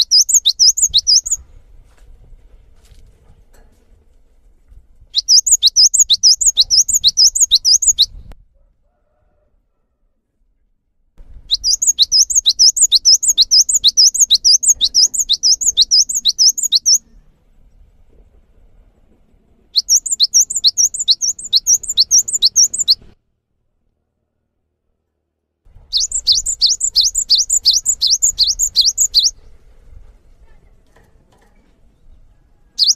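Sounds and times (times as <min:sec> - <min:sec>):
bird singing high sweeping notes: 0:00.0 - 0:01.4, 0:05.2 - 0:08.2, 0:11.5 - 0:17.2, 0:19.8 - 0:23.0, 0:25.9 - 0:29.4.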